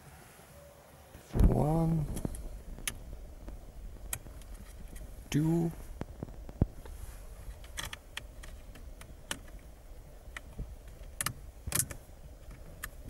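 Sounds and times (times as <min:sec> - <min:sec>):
hands clicking plastic parts: 0:07.5 - 0:13.0.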